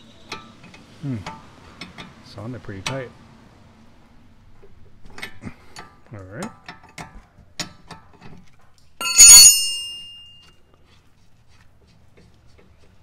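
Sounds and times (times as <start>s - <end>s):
steel wrench clanging: 9.0s - 10.4s
light tool clinks: 9.0s - 10.6s.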